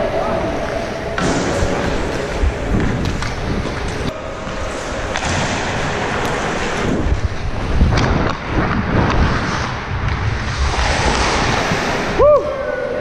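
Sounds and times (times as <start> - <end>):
wind rushing over microphone: 0.0 - 13.0
skate blades scraping ice: 4.7 - 12.1.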